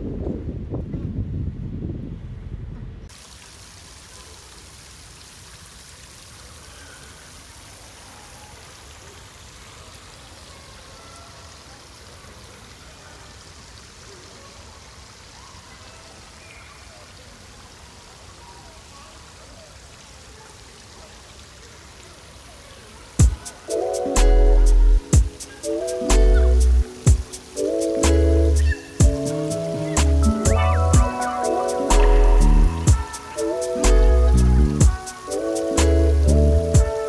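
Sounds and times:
wind noise on microphone: 0:00.0 - 0:03.1
water splashing in fountain: 0:03.1 - 0:37.0
faint echoing voices: 0:07.9 - 0:37.0.

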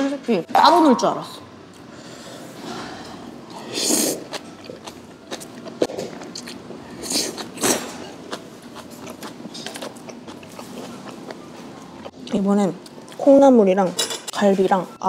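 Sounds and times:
crunchy chewing: 0:04.1 - 0:13.2.

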